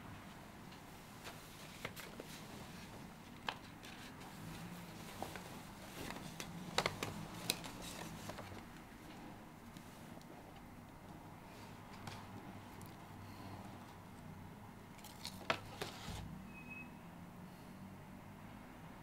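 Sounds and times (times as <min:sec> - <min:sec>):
bedsheets and paper rustling: 0:01.0 - 0:10.2, 0:15.0 - 0:16.3.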